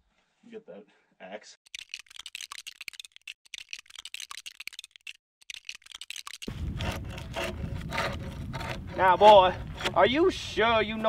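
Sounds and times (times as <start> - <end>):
rapid irregular clicking: 1.7 - 8.8.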